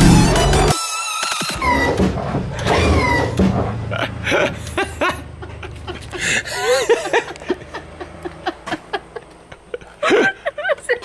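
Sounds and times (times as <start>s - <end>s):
woman laughing: 3.9s - 11.0s.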